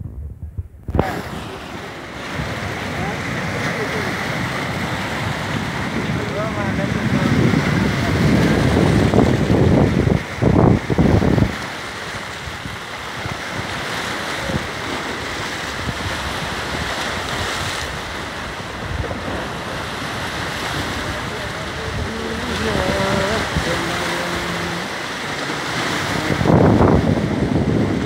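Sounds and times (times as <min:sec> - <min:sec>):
wind buffeting microphone: 0:00.0 - 0:28.0
waves breaking over rocks: 0:00.9 - 0:28.0.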